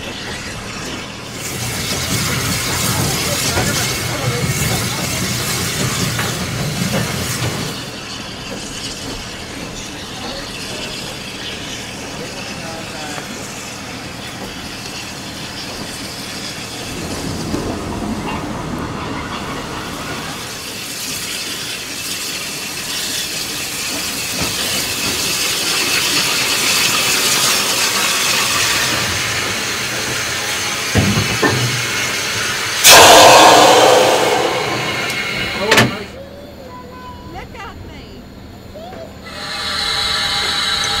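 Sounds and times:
steam hiss: 20.0s - 36.1s, 39.3s - 41.0s.

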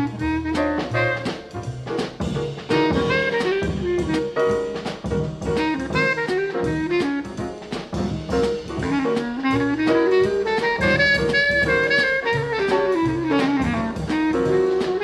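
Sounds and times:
drum kit: 0.0s - 15.0s
horn melody: 0.0s - 15.0s
small jazz combo playing: 0.0s - 15.0s.

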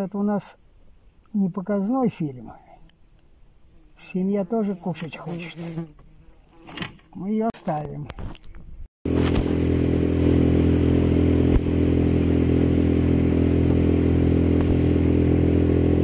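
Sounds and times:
outboard motor running: 9.1s - 16.0s.

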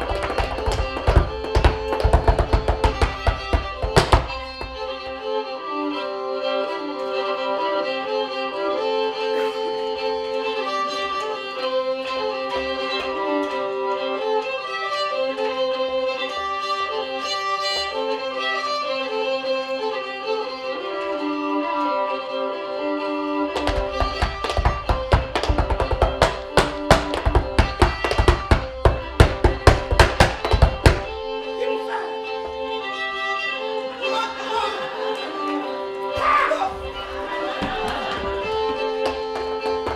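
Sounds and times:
feet tapping on wooden box: 0.0s - 4.9s, 23.5s - 31.2s, 37.4s - 39.9s
fiddle melody: 0.0s - 39.9s.

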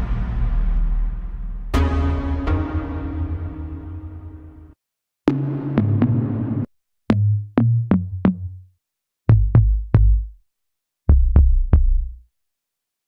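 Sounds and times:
low synth drum hits: 5.3s - 7.3s.

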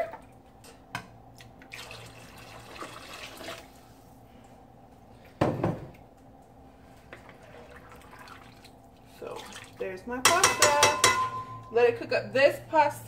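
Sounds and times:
water pouring into pot: 1.6s - 3.8s, 7.2s - 9.8s.

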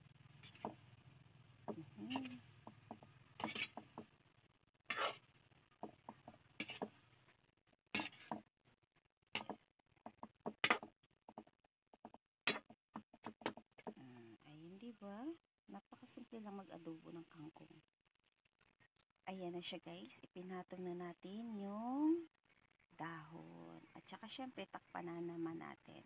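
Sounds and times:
metal ladle scraping a wok: 0.2s - 0.7s, 2.1s - 2.4s, 3.3s - 3.9s, 4.9s - 5.3s, 6.5s - 6.9s, 7.9s - 8.4s.

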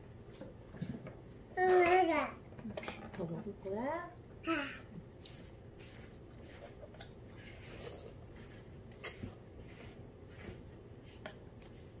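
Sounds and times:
slurping noodles and broth: 5.2s - 10.6s.

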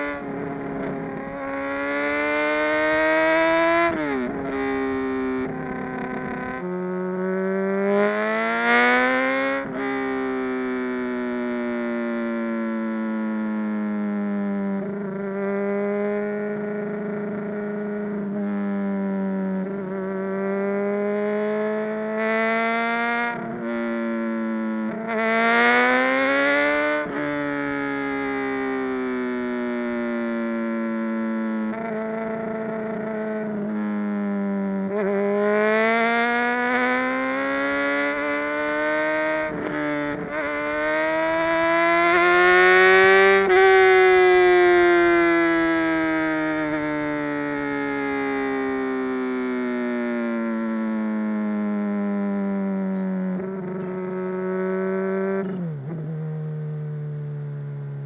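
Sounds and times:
motorcycle engine running: 0.0s - 9.4s, 52.9s - 57.0s
motorcycle engine revving: 0.0s - 49.5s, 50.3s - 58.0s.

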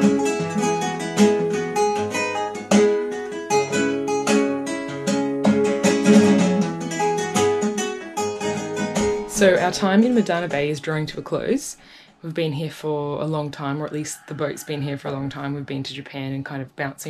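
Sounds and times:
plucked acoustic guitar tune: 0.0s - 11.3s.

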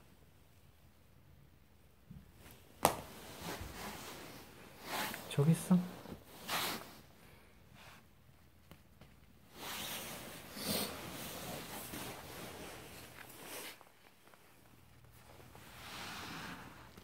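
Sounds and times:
soft rustling of fabric toy: 2.1s - 17.0s
cat sniffing and snuffling: 9.4s - 13.8s, 15.2s - 17.0s.

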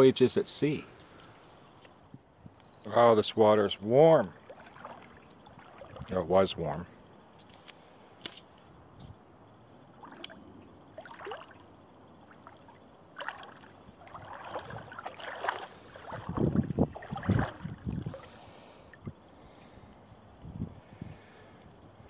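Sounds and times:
feet splashing through shallow water: 4.3s - 6.1s, 9.9s - 18.5s.

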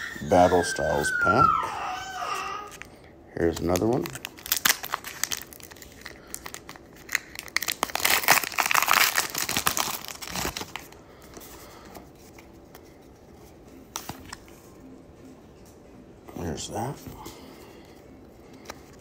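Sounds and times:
foil wrapper crinkling and tearing: 3.5s - 11.0s
cards rustling: 3.5s - 14.8s, 18.2s - 19.0s.

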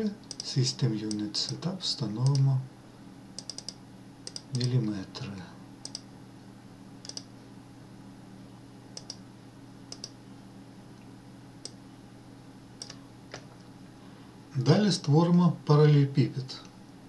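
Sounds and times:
steady low hum: 0.0s - 17.0s
computer mouse clicking: 0.2s - 0.5s, 1.1s - 1.6s, 2.2s - 2.5s, 3.4s - 4.8s, 5.8s - 6.0s, 7.0s - 7.3s, 9.0s - 9.2s, 9.9s - 10.2s, 12.8s - 13.4s.

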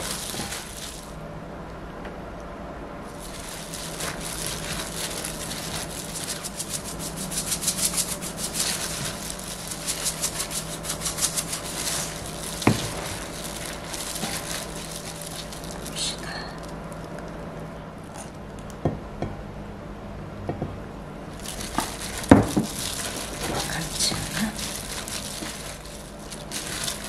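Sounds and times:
gloved hand rubbing wet shreds: 0.0s - 1.2s, 3.1s - 17.4s, 21.3s - 27.0s.

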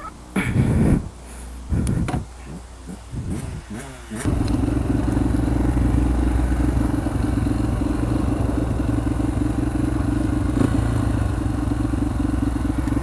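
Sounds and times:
dirt bike engine idling: 1.6s - 13.0s.

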